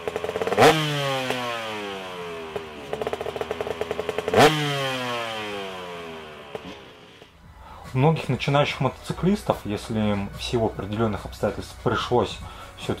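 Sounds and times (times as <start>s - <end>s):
motorcycle ticking idle: 0.0s - 7.4s
motorcycle engine revving: 0.0s - 7.5s.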